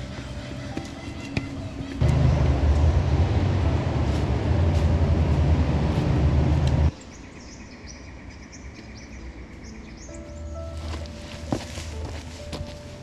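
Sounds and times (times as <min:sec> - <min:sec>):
loud low rumble: 0:02.0 - 0:06.9.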